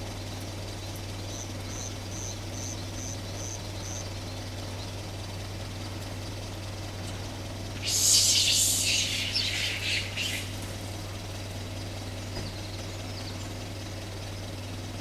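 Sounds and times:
steady low hum: 0:00.0 - 0:15.0
animal chirping and squawking: 0:07.8 - 0:11.0.

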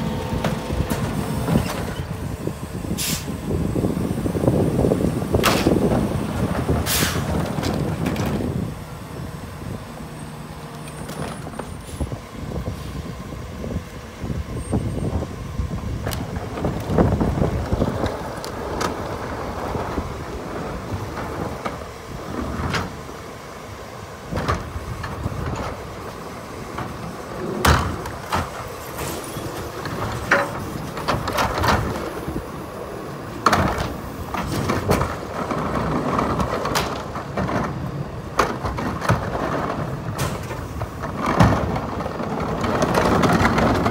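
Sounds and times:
trash carts banging on hopper: 0:00.0 - 0:43.9.

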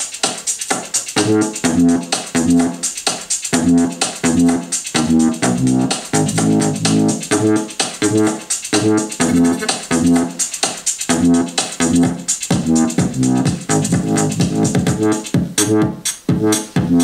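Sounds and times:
instrumental music with steady beat: 0:00.0 - 0:17.0.

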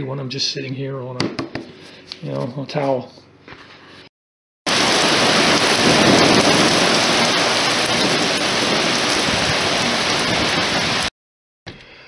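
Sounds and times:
heavy rain on pavement and cars: 0:04.7 - 0:11.1.

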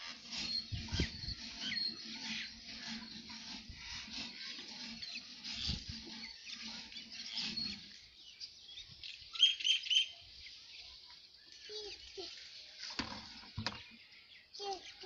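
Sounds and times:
bird chirps: 0:00.3 - 0:02.6, 0:05.0 - 0:12.5, 0:13.5 - 0:15.0.

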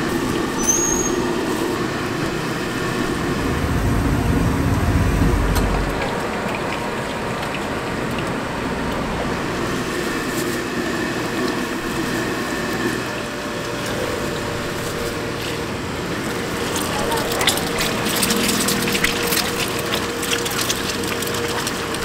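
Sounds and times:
oil sizzling and bubbling: 0:00.0 - 0:22.0.

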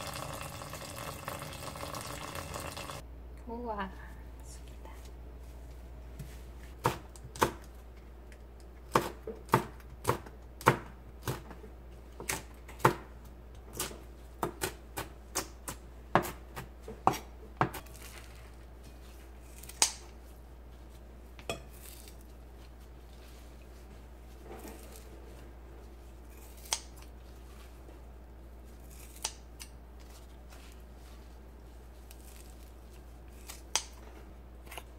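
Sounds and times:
knife chopping on cutting board: 0:06.8 - 0:07.7, 0:08.9 - 0:11.6, 0:13.7 - 0:17.9.

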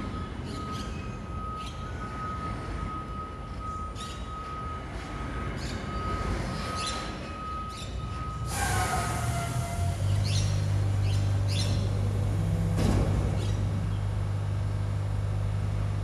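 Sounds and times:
garbage truck engine running: 0:08.5 - 0:16.0
birds chirping: 0:10.0 - 0:12.5, 0:13.2 - 0:15.6.

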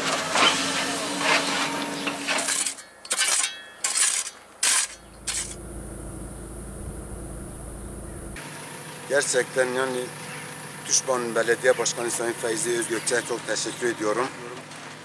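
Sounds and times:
bucket scraping stony soil: 0:00.0 - 0:05.6
low steady hum: 0:04.9 - 0:08.4
diesel engine running: 0:05.0 - 0:09.1.

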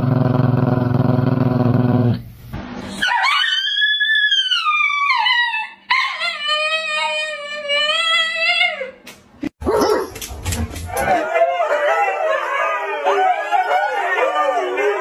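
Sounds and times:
dogs howling: 0:03.0 - 0:08.9, 0:10.9 - 0:15.0.

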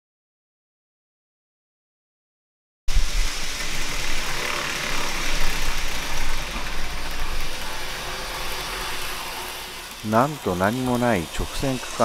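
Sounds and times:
small motor: 0:02.9 - 0:12.0
model train wheels rattling: 0:03.3 - 0:12.0.

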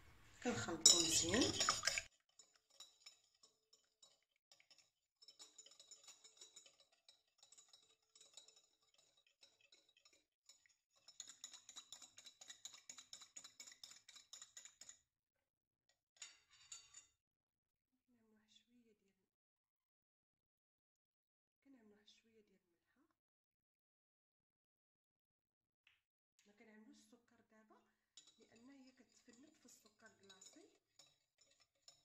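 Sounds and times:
fork beating egg in glass bowl: 0:00.5 - 0:15.0, 0:28.2 - 0:32.0.

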